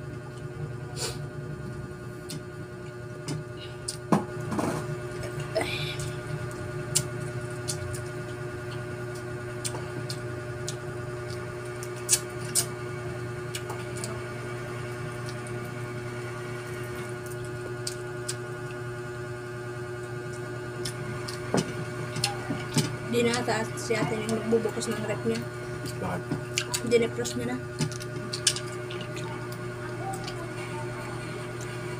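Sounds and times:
steady low hum: 0:00.0 - 0:31.9
shells cracking and clicking: 0:27.8 - 0:29.6.

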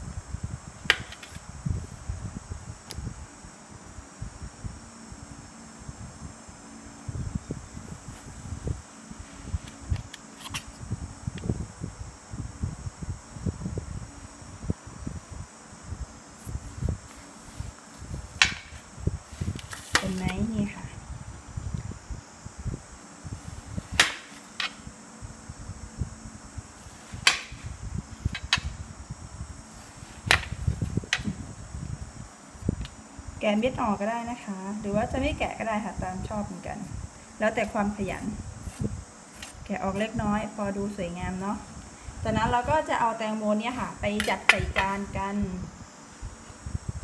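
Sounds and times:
knife cutting watermelon thuds: 0:00.9 - 0:01.4, 0:19.4 - 0:20.6, 0:38.6 - 0:40.2
soft handling noise: 0:16.3 - 0:21.0, 0:36.8 - 0:41.7.

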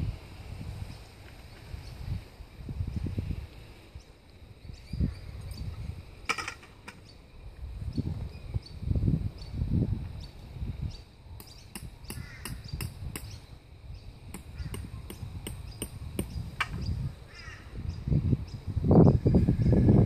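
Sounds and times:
birds calling: 0:10.2 - 0:20.0.

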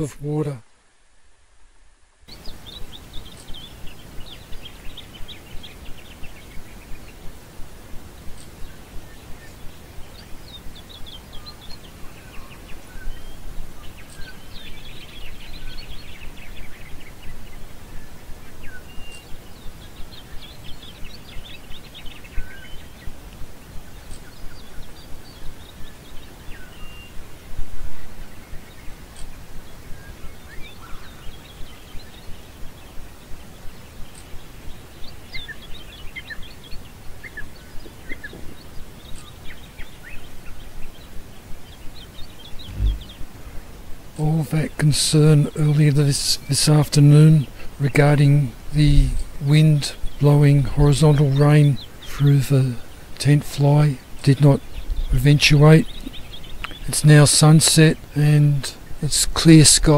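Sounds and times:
low wind noise: 0:00.0 - 0:57.0
birds chirping and trilling: 0:02.3 - 0:59.9
soft regular pulses: 0:42.2 - 0:44.2
brief rush of noise: 0:42.6 - 0:43.4.

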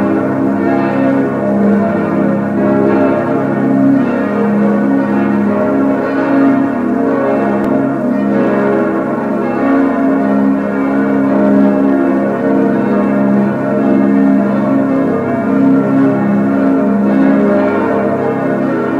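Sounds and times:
church bells pealing: 0:00.0 - 0:18.9.

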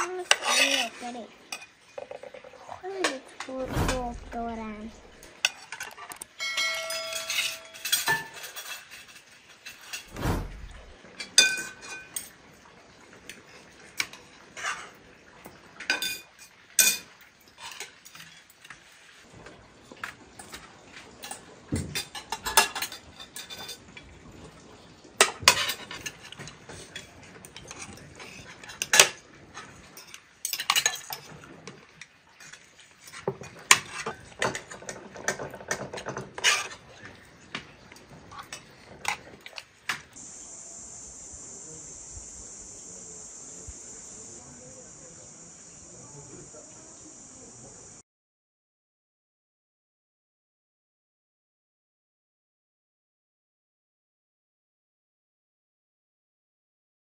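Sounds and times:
cutlery clinking on dishes: 0:00.0 - 0:02.4, 0:05.4 - 0:10.1, 0:11.2 - 0:12.4, 0:14.0 - 0:15.0, 0:15.8 - 0:18.8, 0:20.0 - 0:24.0, 0:25.2 - 0:31.6, 0:32.5 - 0:40.1.

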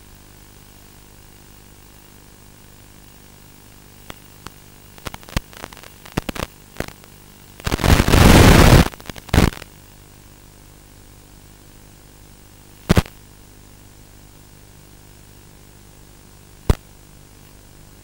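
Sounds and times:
radio static crackles: 0:04.0 - 0:09.8, 0:12.8 - 0:13.2, 0:16.6 - 0:16.9
burst of radio static: 0:05.0 - 0:07.0, 0:07.6 - 0:09.7, 0:12.8 - 0:13.2.

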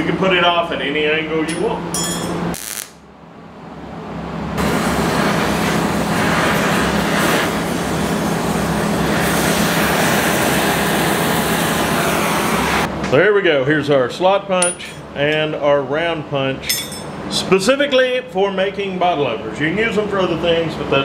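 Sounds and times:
gas torch flame hissing: 0:04.6 - 0:12.9.

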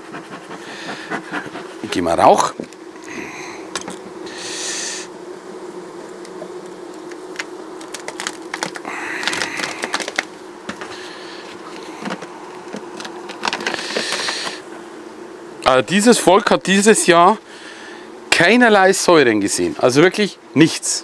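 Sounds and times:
bees buzzing: 0:00.0 - 0:21.0
plastic sheet crackling: 0:07.0 - 0:11.0, 0:11.7 - 0:14.6.

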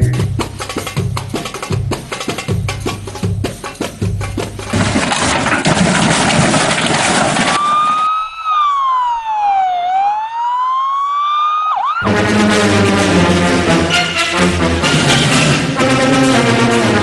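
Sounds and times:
siren wail: 0:07.6 - 0:12.2.

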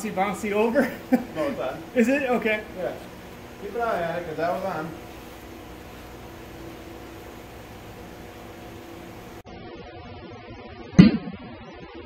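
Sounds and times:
steady background hum: 0:00.0 - 0:09.4.

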